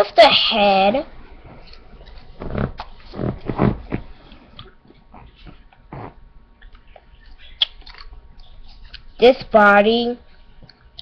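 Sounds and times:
muffled bumps and rustles: 1.3 - 6.2.

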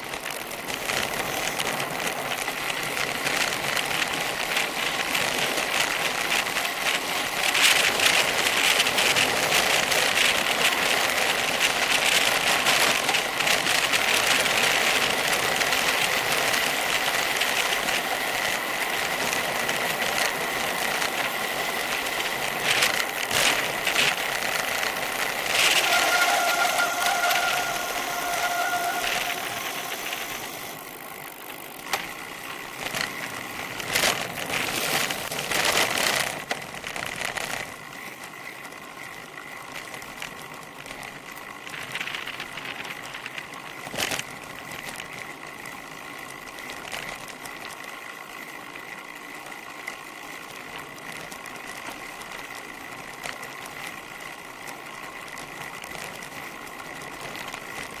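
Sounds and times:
bicycle rattling and ticking: 0.0 - 58.0
bicycle tyre and wind noise: 0.0 - 58.0
steady whine: 21.2 - 33.1
sharp bumps: 23.4 - 31.0.

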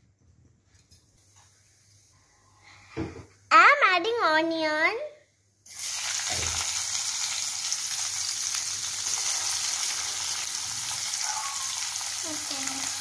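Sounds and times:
onions sizzling in oil: 5.7 - 13.0.

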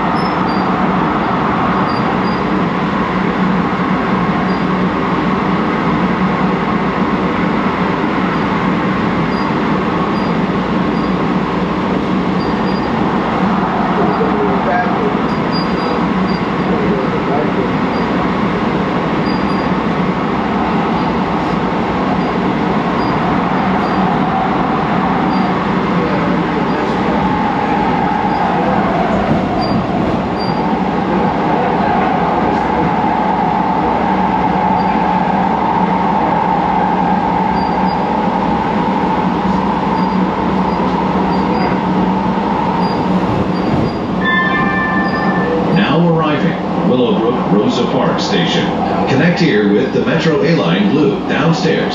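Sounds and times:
train wheels rumbling on rail: 0.0 - 51.9.

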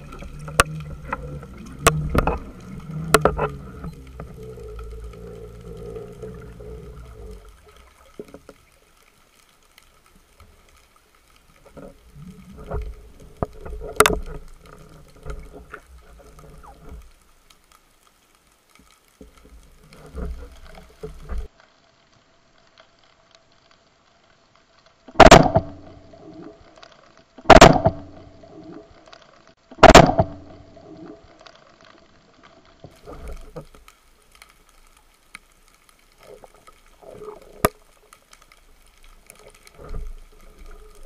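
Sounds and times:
clicks and knocks from diving gear: 0.0 - 8.6, 11.6 - 17.1
low underwater noise: 0.0 - 41.0.

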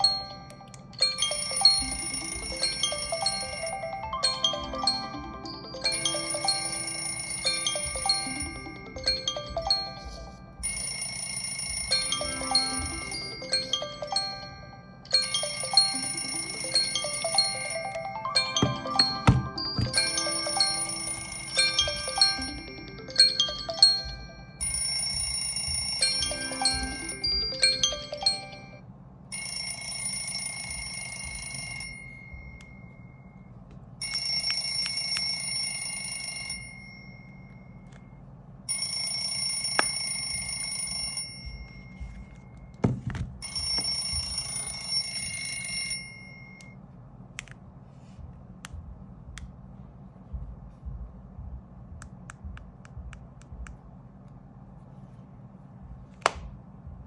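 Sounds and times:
smartphone alarm tone ringing: 0.0 - 33.4, 34.0 - 38.0, 38.7 - 42.8, 43.4 - 46.8.

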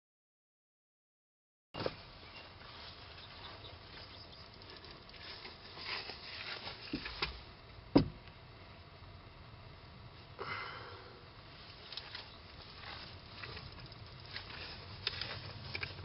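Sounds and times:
footsteps: 1.8 - 7.4, 11.6 - 16.0
rustling near microphone: 1.8 - 7.5, 11.4 - 16.0.

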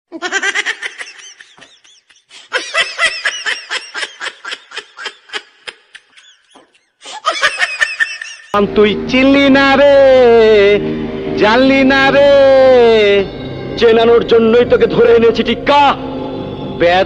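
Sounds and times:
high-pitched squeaky giggles: 0.1 - 8.6.

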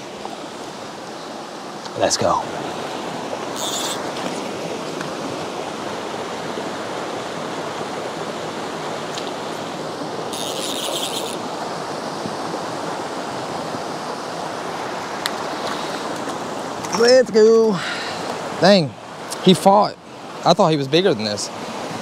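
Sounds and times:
stream water flowing: 0.0 - 22.0
brief high-pitched rasping: 3.6 - 4.0, 10.4 - 11.4.

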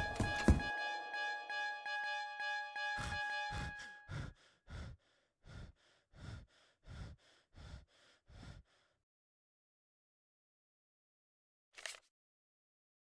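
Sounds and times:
synth music: 0.0 - 4.2
man breathing fast and hard: 3.6 - 9.0.

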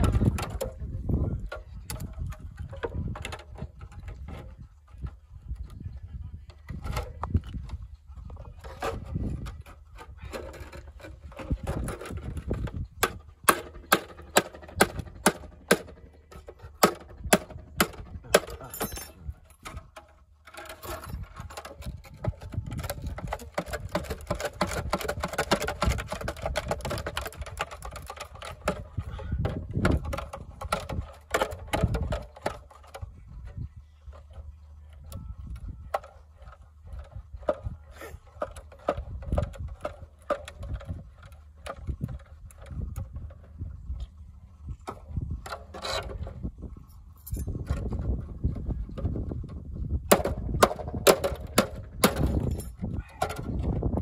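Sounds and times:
thin metal scraping and crinkling: 18.5 - 25.4.

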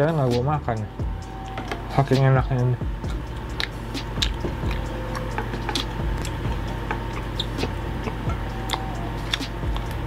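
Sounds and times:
steady low hum: 0.0 - 10.0
person chewing: 3.0 - 10.0.

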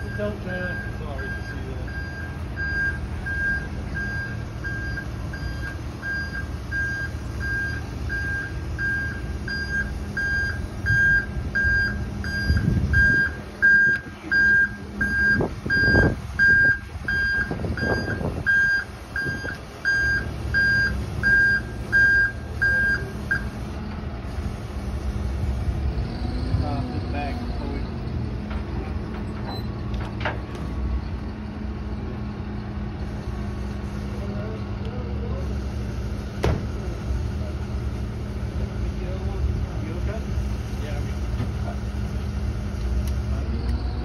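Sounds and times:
backup alarm beeping: 0.0 - 23.6
low rumbles: 0.0 - 44.0
truck engine running: 0.0 - 44.0.

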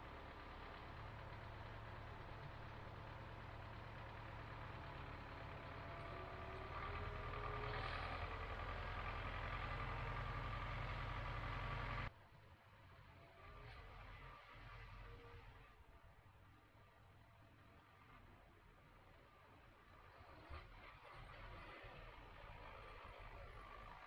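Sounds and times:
tractor engine droning: 0.0 - 12.1.

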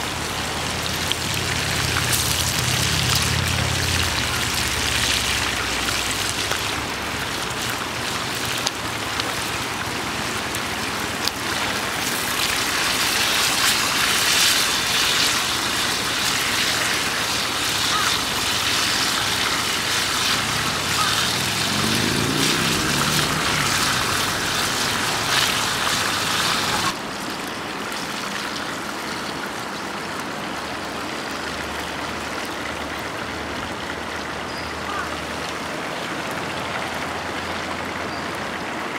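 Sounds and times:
meat sizzling in a frying pan: 0.3 - 27.0.

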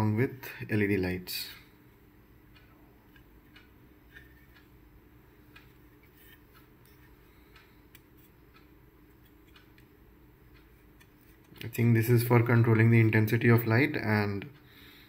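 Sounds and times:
faint clicks and taps: 5.4 - 11.8.

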